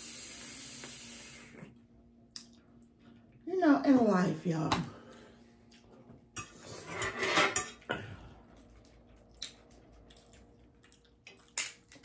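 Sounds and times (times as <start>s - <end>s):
dishes and cutlery clinking: 6.4s - 8.0s.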